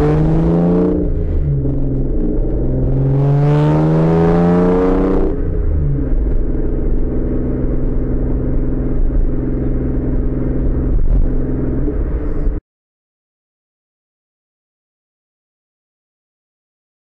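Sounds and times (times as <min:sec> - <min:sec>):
car exhaust droning: 0:00.0 - 0:12.6.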